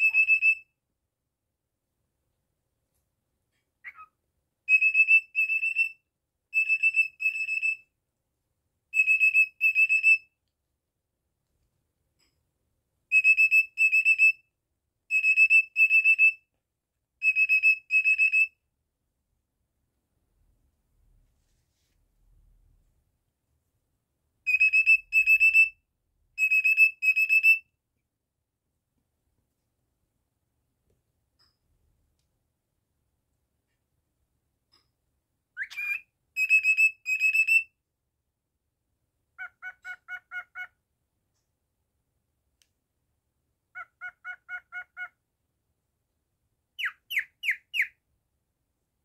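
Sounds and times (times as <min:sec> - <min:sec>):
cockatiel beeping whistles: 0:00.0 - 0:00.7, 0:03.8 - 0:04.1, 0:04.7 - 0:07.8, 0:08.9 - 0:10.3, 0:13.1 - 0:14.4, 0:15.1 - 0:16.4, 0:17.2 - 0:18.6, 0:24.5 - 0:25.8, 0:26.4 - 0:27.6, 0:35.6 - 0:37.7, 0:46.8 - 0:48.0
cockatiel chirp: 0:00.0 - 0:00.7, 0:03.8 - 0:07.8, 0:08.9 - 0:10.3, 0:13.1 - 0:14.4, 0:15.1 - 0:16.4, 0:17.2 - 0:18.6, 0:24.5 - 0:25.8, 0:26.4 - 0:27.7, 0:35.6 - 0:37.7, 0:39.4 - 0:40.8, 0:43.7 - 0:45.2, 0:46.7 - 0:48.0.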